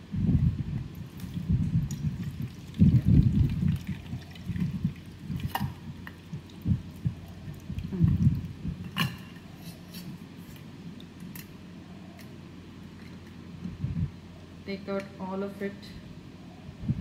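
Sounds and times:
liquid dripping through a sieve: 0.8s - 9.5s.

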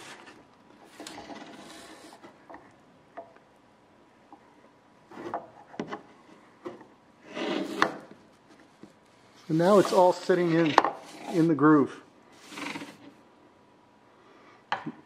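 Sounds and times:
soft scrape on workbench: 7.2s - 8.0s, 9.3s - 11.8s.

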